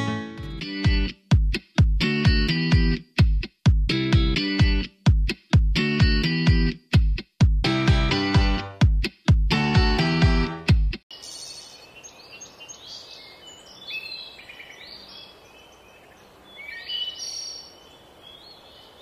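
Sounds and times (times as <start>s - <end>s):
guitar music: 0.0s - 11.0s
outdoor background hiss: 11.1s - 19.0s
small birds chirping: 11.1s - 19.0s.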